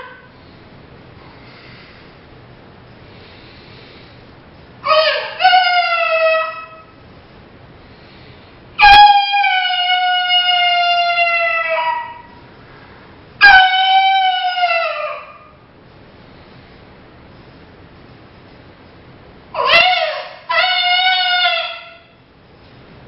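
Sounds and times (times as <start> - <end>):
coyote howls on a reed call: 4.8 - 7.0, 8.8 - 12.4, 13.4 - 15.6, 19.6 - 22.2.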